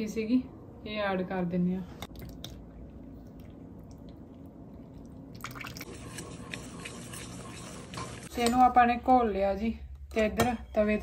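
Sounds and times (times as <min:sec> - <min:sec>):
metal utensil scraping a bowl: 0:05.8 - 0:08.6.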